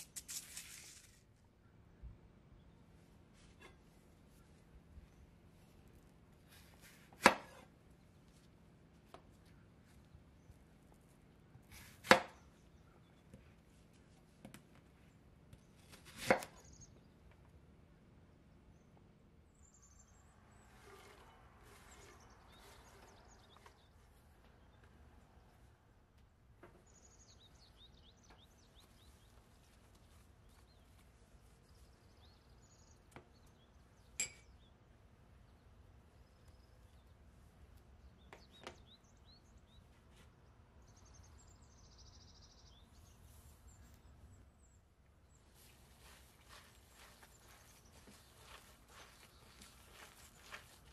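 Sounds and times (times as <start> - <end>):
sharp clink: 34.2 - 34.6.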